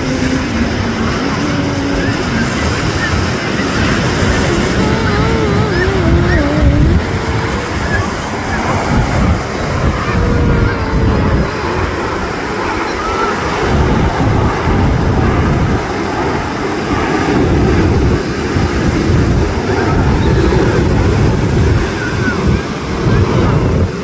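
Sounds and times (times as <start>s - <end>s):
surf breaking on beach: 0.0s - 24.0s
wind gusting against microphone: 0.0s - 24.0s.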